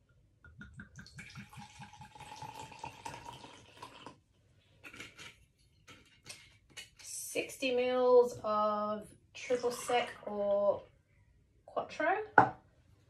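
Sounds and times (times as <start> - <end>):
liquid pouring and gurgling: 0.6 - 4.2.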